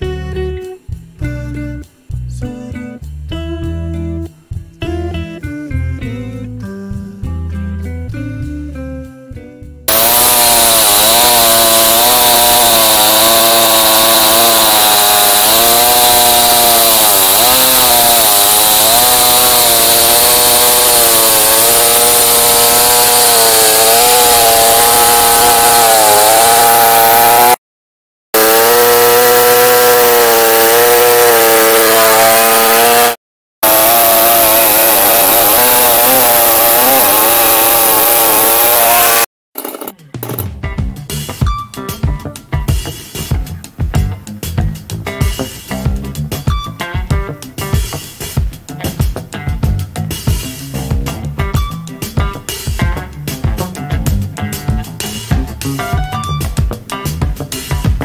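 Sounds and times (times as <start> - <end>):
chainsaw cutting log: 9.9 - 27.6, 28.4 - 40.4.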